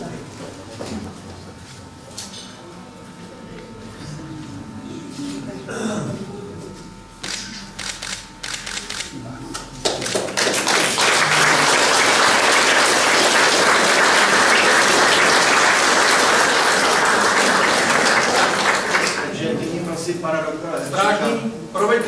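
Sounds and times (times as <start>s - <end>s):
audience clapping: 9.8s - 19.4s.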